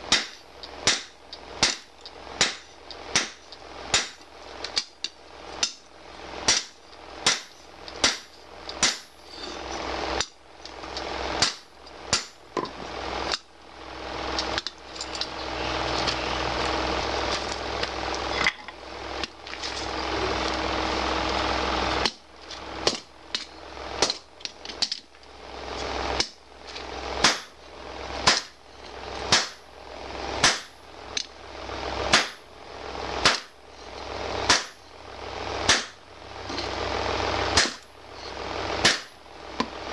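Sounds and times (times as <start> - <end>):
hammer striking metal on anvil: 0.1 - 1.8, 6.5 - 9.5.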